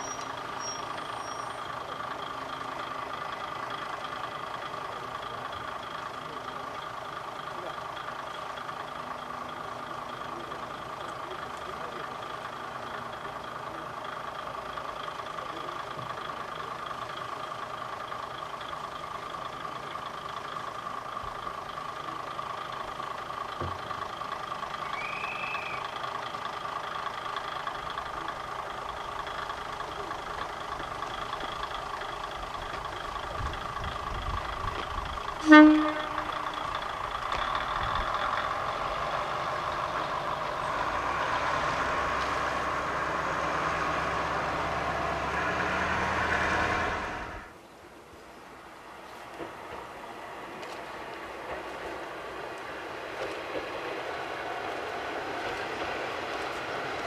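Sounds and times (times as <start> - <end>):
diesel railcar engine idling: 0.0 - 57.0
train horn blast: 35.4 - 36.6.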